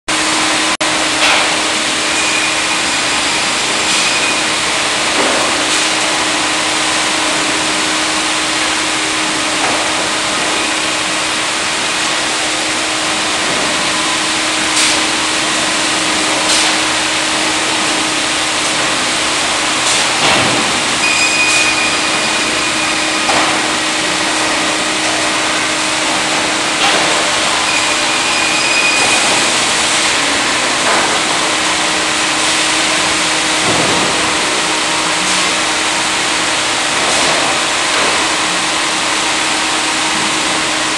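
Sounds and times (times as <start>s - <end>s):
conveyor machine hum and whir: 0.1s - 40.9s
short high tones: 21.0s - 23.2s.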